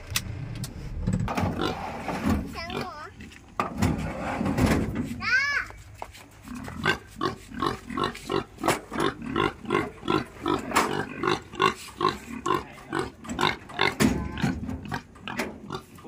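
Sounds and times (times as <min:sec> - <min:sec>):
pig grunting: 0:01.5 - 0:03.3, 0:06.4 - 0:16.0.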